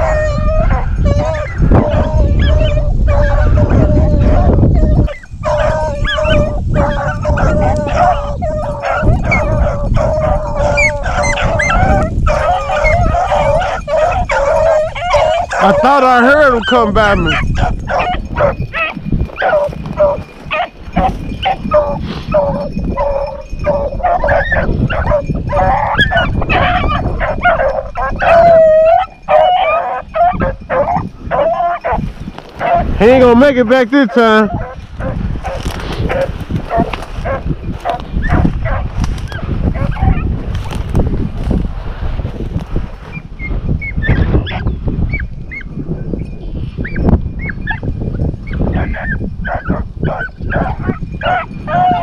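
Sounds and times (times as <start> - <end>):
dog howling: 0.0 - 32.0, 32.6 - 32.9, 34.5 - 40.2, 48.7 - 52.0
hounds barking and yipping: 0.0 - 40.8, 43.1 - 52.0
wind: 0.0 - 52.0
rustling: 35.4 - 39.4.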